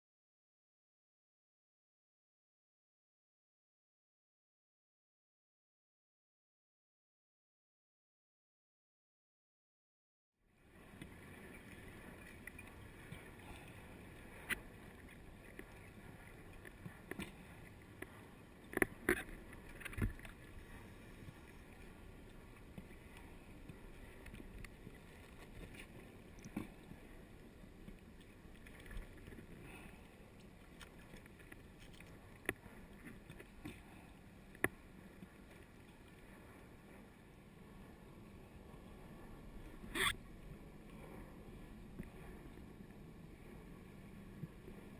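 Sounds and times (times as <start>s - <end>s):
faint underwater noise: 10.6s - 44.9s.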